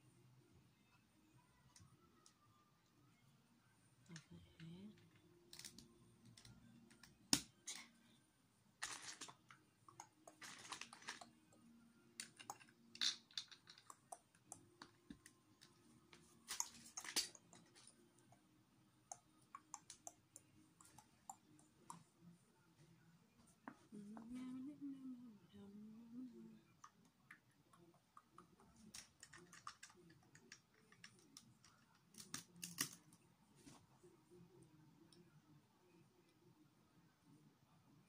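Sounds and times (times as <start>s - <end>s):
loose plastic pieces rustling: 8.8s - 9.4s, 10.4s - 11.3s
plastic bricks clicking: 12.2s - 15.2s.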